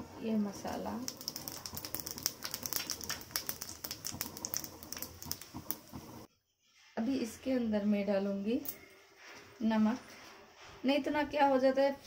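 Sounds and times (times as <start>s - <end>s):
seeds crackling in hot oil: 0.0s - 6.3s.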